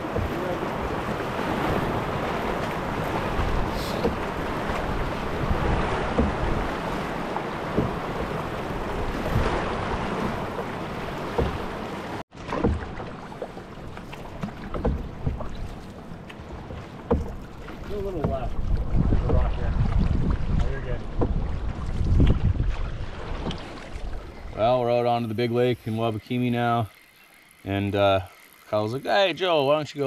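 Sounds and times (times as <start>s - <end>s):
wind on microphone: 0.0s - 11.8s, 18.0s - 24.6s
water around canoe: 0.0s - 30.0s.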